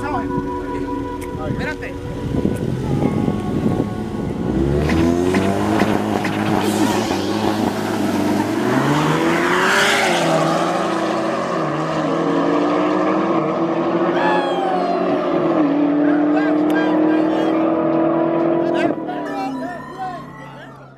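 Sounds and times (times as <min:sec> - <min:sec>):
car engine revving: 0:00.0 - 0:20.8.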